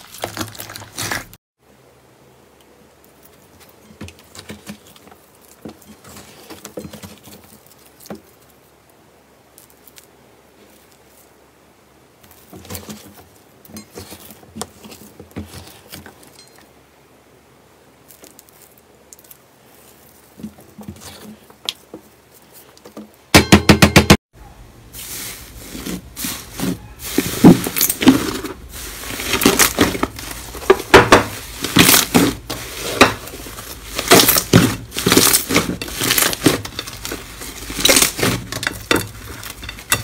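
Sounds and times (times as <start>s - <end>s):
wet crackles and pops: 7.5s - 11.3s, 18.0s - 20.4s.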